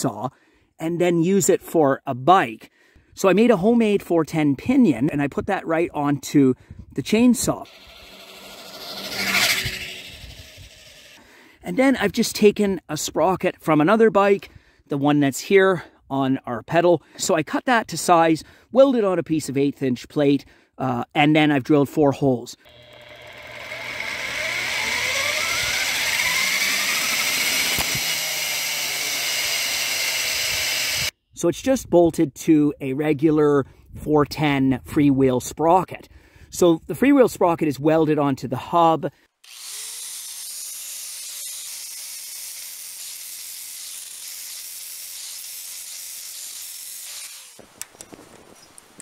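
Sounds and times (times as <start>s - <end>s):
electric motor whine: 7.6s - 11.2s, 22.6s - 31.1s.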